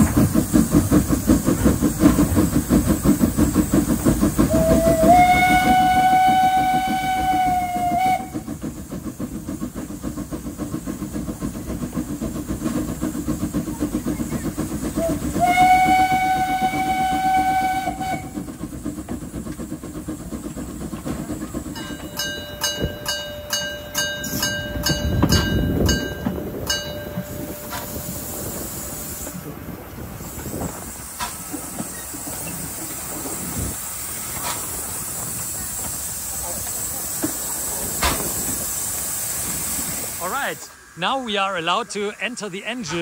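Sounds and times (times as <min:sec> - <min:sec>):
steam train running: 0:00.0 - 0:43.0
steam whistle blast: 0:04.4 - 0:08.5, 0:15.0 - 0:18.5.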